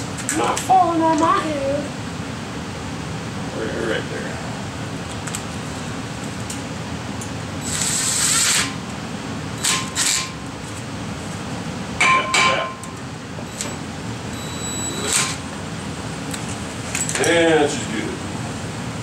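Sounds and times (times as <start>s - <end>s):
cordless drill running: 7.6s - 8.8s.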